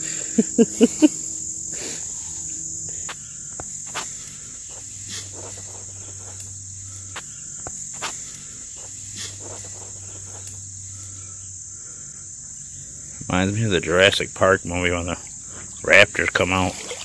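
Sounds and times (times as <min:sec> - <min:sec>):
insects chirping: 0:00.0 - 0:17.0
faint rustles and clicks: 0:02.0 - 0:10.7.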